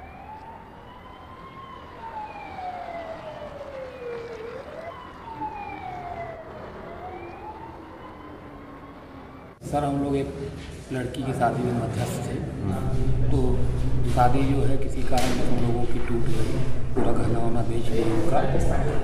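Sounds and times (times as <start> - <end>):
police siren wailing: 0.0 - 9.6.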